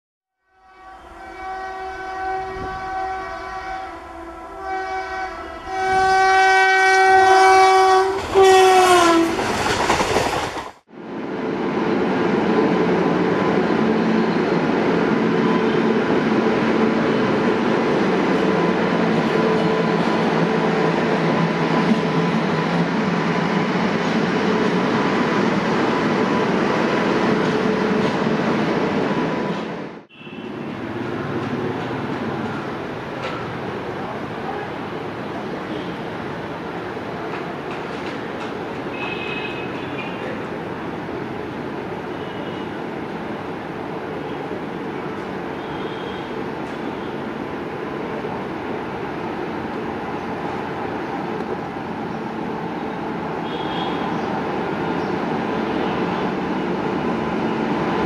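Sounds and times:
locomotive horn blasts: 0.4s - 9.4s, 30.1s - 30.6s, 38.9s - 40.2s, 45.6s - 47.1s, 53.4s - 54.1s
train wheels rumbling and rattling: 8.1s - 10.9s, 16.0s - 29.9s, 30.8s - 34.3s, 36.7s - 40.7s.

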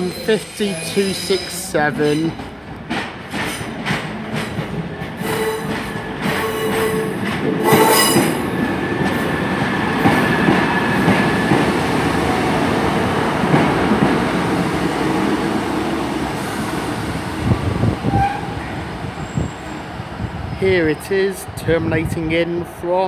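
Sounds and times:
diesel train rumbling: 0.0s - 22.8s
train clunks: 0.9s - 11.8s
high-pitched wheel squeal: 7.6s - 8.4s.

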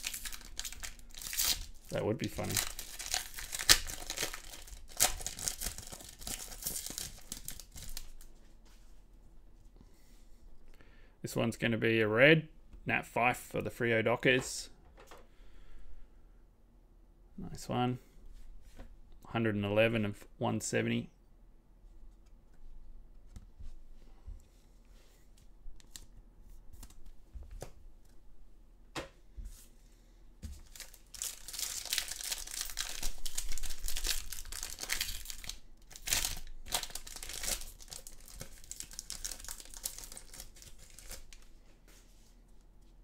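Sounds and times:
foil wrapper crinkling and tearing: 0.0s - 8.3s, 30.6s - 41.4s.

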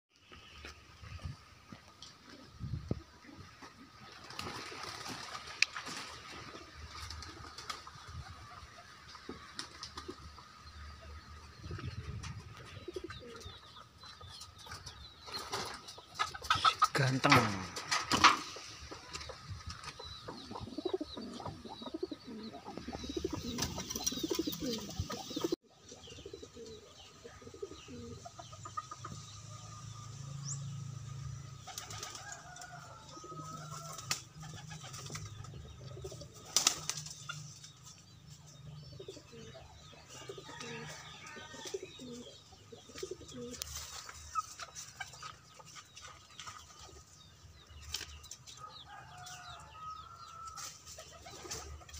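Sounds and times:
wings flapping: 4.0s - 8.4s, 22.8s - 25.6s, 31.6s - 32.4s, 33.7s - 35.5s, 36.1s - 37.4s
pigeons cooing: 11.5s - 29.2s, 31.6s - 37.4s, 38.8s - 46.7s.

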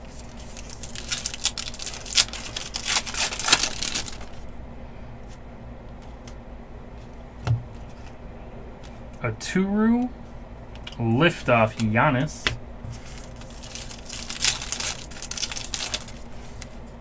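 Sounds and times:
trading cards clicking and rustling: 0.2s - 4.4s, 10.8s - 16.8s.

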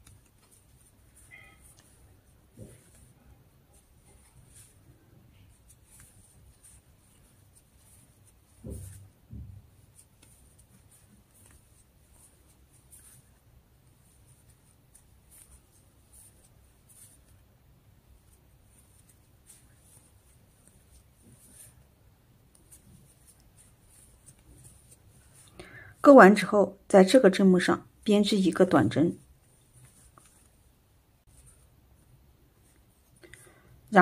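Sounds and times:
crochet hook scratching yarn: 0.0s - 25.5s, 28.5s - 30.6s, 31.2s - 31.8s
soft thumps: 8.5s - 10.0s.

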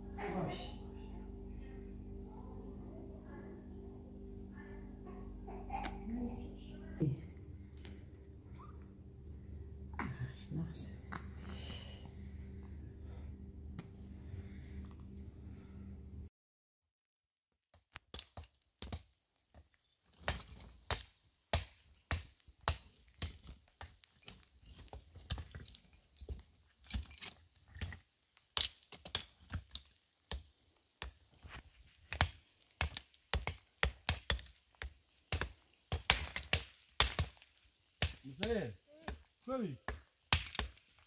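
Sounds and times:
flat stones knocking together: 17.9s - 41.0s.

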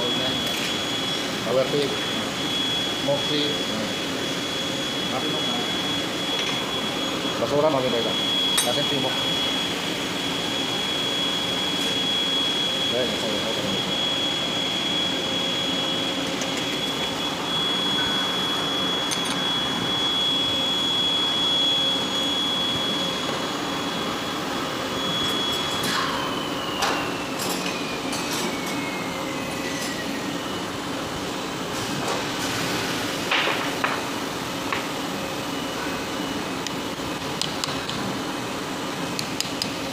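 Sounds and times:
machine whine spinning down: 0.0s - 31.6s
workshop machinery noise: 0.0s - 39.9s.

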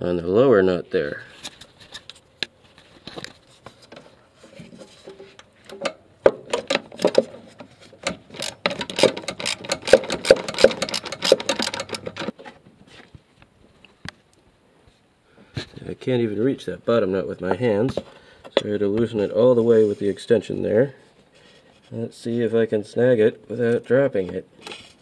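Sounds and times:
socket ratchet clicking: 8.3s - 12.3s.

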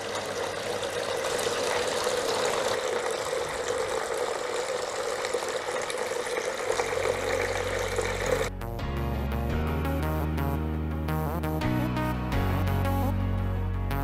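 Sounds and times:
fountain water splashing: 0.0s - 8.5s
low steady hum: 0.0s - 8.5s.

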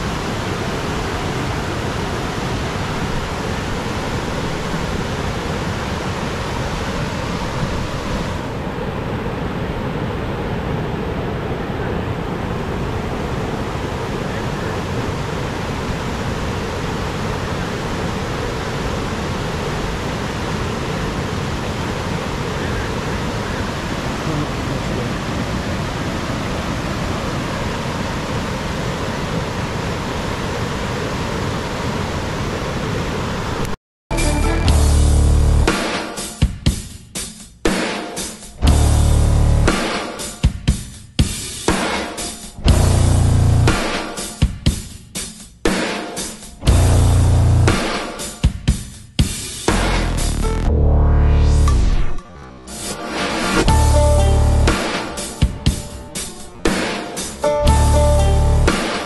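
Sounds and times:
waterfall roaring: 0.0s - 36.2s, 41.7s - 44.2s, 51.7s - 59.0s.

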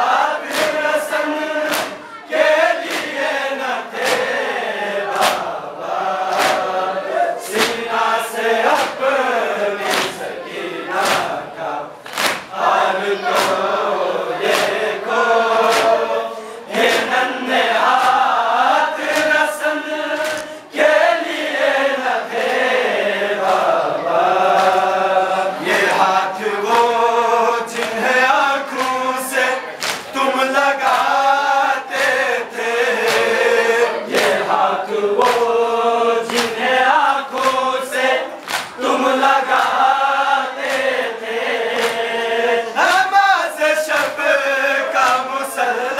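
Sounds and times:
men chanting in unison: 0.0s - 45.9s
hands slapping chests: 0.4s - 3.3s, 4.0s - 4.4s, 5.1s - 5.6s, 6.2s - 6.8s, 7.4s - 8.0s, 8.6s - 9.2s, 9.8s - 10.3s, 10.9s - 18.4s, 19.0s - 20.6s, 23.4s - 23.8s, 24.4s - 25.0s, 25.6s - 27.0s, 27.7s - 30.2s, 30.8s - 31.2s, 33.0s - 34.6s, 35.2s - 35.6s, 36.2s - 39.9s, 40.6s - 41.0s, 41.7s - 42.1s, 43.9s - 44.2s, 45.0s - 45.3s.

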